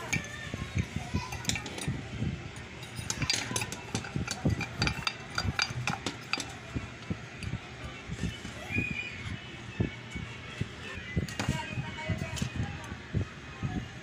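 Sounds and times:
glass and metal clicks and taps: 2.8s - 6.6s.

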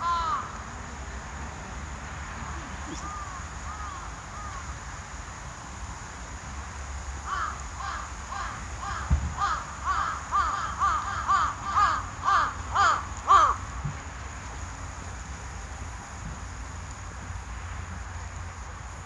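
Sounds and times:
crow cawing: 0.0s - 0.5s, 2.9s - 4.7s, 7.2s - 13.6s
low thump: 9.1s - 9.4s.

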